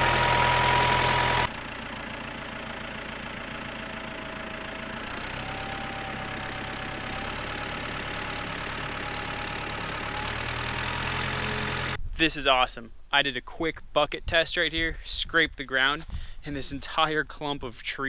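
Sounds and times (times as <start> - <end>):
backhoe engine running: 0.0 - 12.0.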